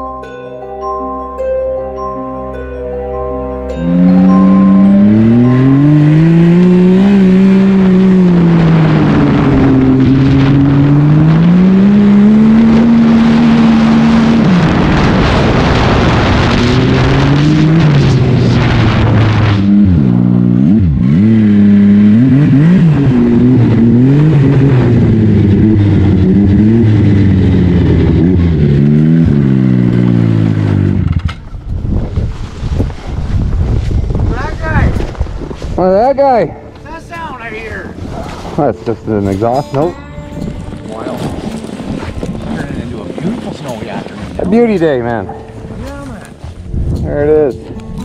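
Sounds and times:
snowmobile engine revving: 0:03.7 - 0:31.2, 0:35.8 - 0:46.3.

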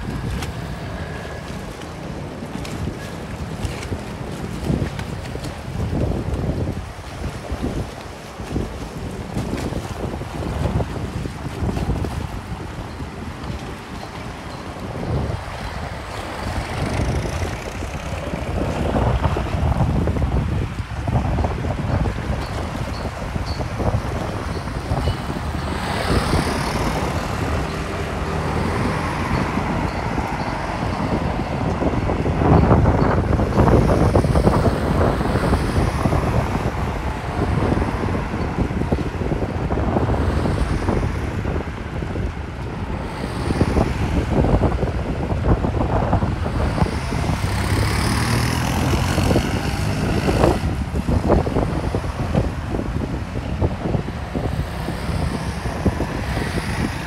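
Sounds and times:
wind buffeting microphone: 0:00.0 - 0:57.0
cars driving past: 0:24.5 - 0:57.0.

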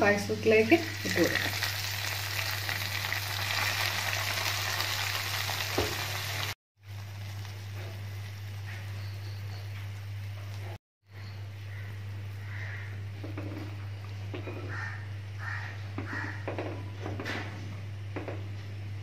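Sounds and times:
hot ghee sizzling: 0:00.1 - 0:10.7.

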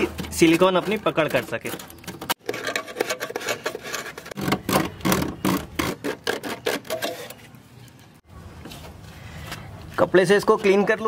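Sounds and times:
sandpaper rubbing on metal panel: 0:02.4 - 0:04.8, 0:05.5 - 0:07.4.

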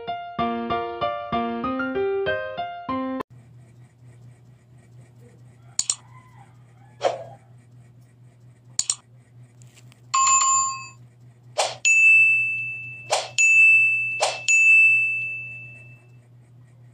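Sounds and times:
sharp clicks: 0:05.8 - 0:06.0, 0:08.7 - 0:09.0
bell-like dings: 0:11.9 - 0:16.1.

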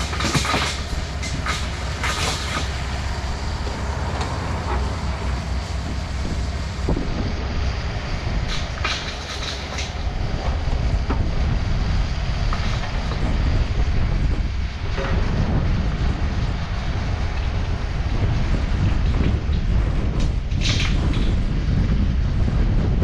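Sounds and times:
excavator bucket clanking: 0:00.0 - 0:07.2, 0:08.4 - 0:11.6, 0:14.8 - 0:15.8
excavator diesel engine running: 0:00.0 - 0:23.0.

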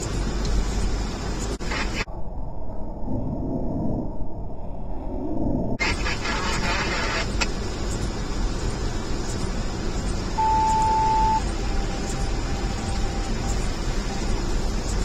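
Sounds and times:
car road rumble: 0:00.0 - 0:02.2, 0:03.9 - 0:15.0
rain on windshield: 0:05.9 - 0:15.0
electronic beep: 0:10.4 - 0:14.4.

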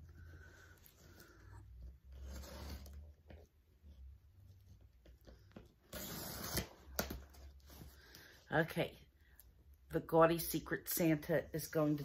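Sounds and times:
cardboard and tape tearing: 0:02.1 - 0:03.1, 0:05.8 - 0:07.8.

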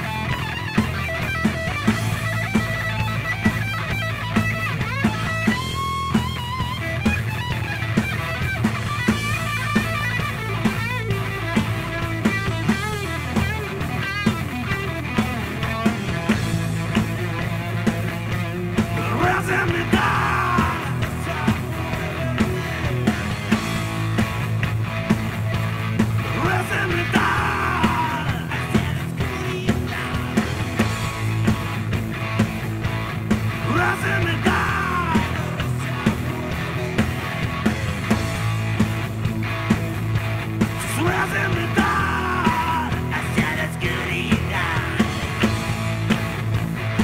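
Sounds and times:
distorted electric guitar: 0:00.0 - 0:47.0
driving drum beat: 0:00.0 - 0:47.0
electric bass: 0:00.0 - 0:47.0
live rock band playing: 0:00.0 - 0:47.0
person yelling a sung vocal: 0:18.9 - 0:22.9, 0:26.3 - 0:30.4, 0:33.6 - 0:37.0, 0:40.8 - 0:45.1.

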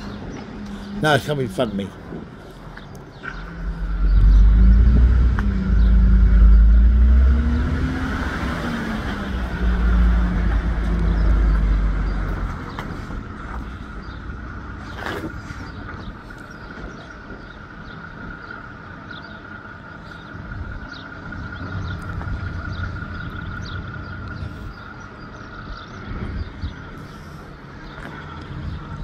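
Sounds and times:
low rumble: 0:01.9 - 0:18.4.

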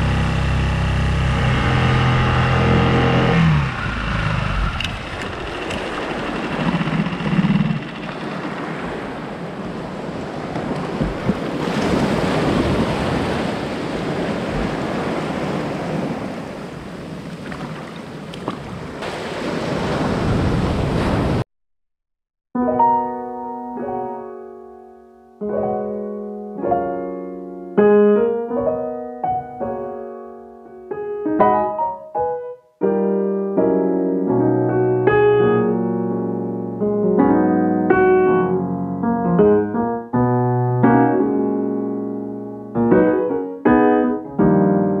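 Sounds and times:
slow solo piano: 0:22.6 - 0:45.0.

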